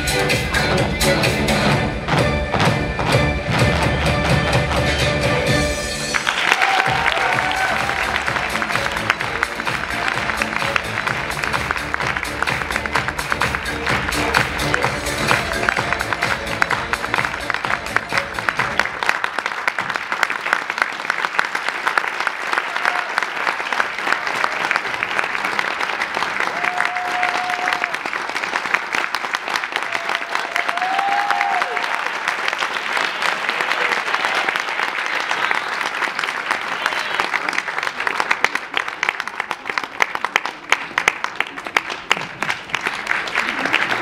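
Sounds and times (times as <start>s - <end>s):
dance music: 0.0s - 19.2s, 43.4s - 44.0s
audience applauding: 6.0s - 44.0s
short cheers: 6.3s - 8.3s, 22.5s - 23.3s, 26.4s - 28.0s, 29.8s - 32.0s.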